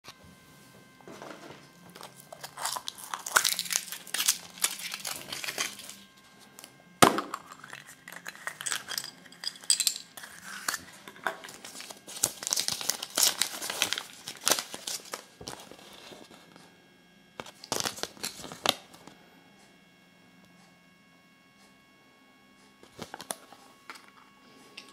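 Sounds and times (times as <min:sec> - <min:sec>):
foil wrapper crinkling and tearing: 0:01.9 - 0:06.7, 0:07.3 - 0:16.3, 0:17.4 - 0:19.0, 0:22.9 - 0:23.4.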